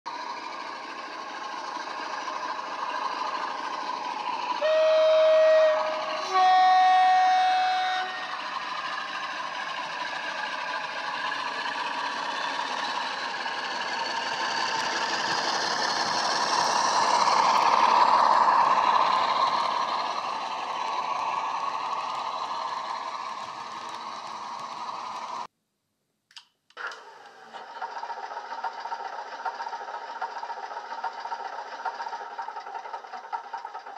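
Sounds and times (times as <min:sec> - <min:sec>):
diesel engine sound from small speaker: 0:00.1 - 0:25.5.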